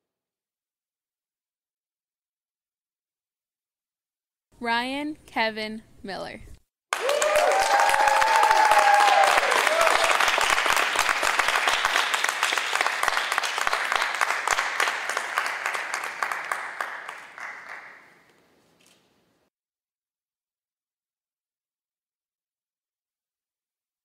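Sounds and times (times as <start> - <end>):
people cheering: 6.9 - 17.8
audience clapping: 6.9 - 18.3.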